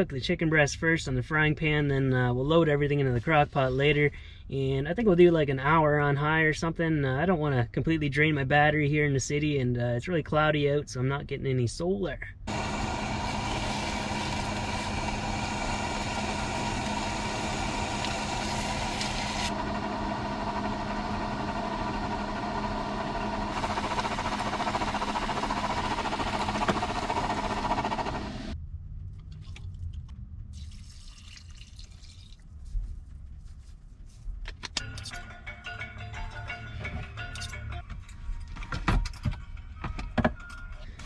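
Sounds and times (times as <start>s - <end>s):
low hum: 12.4s - 30.8s.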